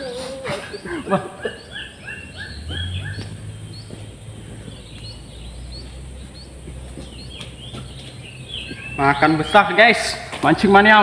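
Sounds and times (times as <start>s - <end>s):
bird calling repeated notes: 0.0s - 9.7s
higher bird chirps: 0.0s - 10.3s
low steady rumble: 1.9s - 9.0s.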